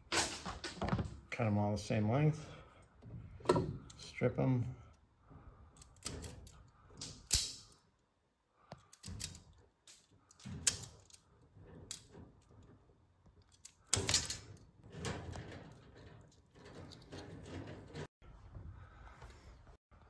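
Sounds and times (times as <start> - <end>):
wire stripper snipping: 7.0 - 7.8
wires rustling: 8.6 - 19.8.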